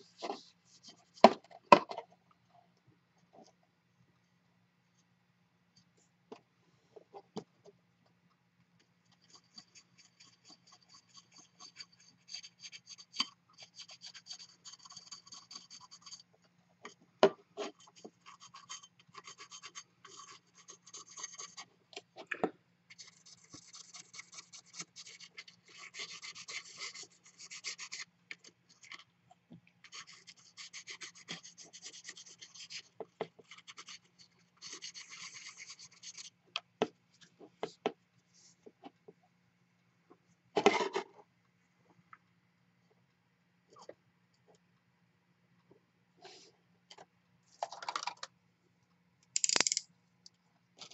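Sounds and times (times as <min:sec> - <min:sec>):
sharp clicks: 0:49.4 - 0:49.8.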